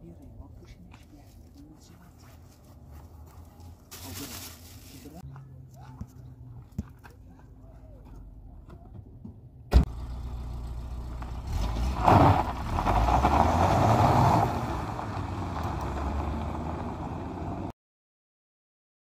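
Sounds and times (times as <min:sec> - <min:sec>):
car engine pulling away: 0:09.7 - 0:17.7.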